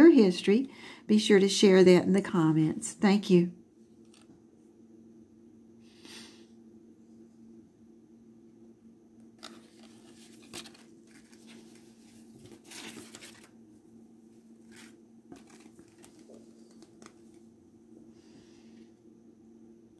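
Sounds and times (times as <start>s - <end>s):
low steady hum: 0.0s - 19.9s
fabric rustling: 14.6s - 17.4s.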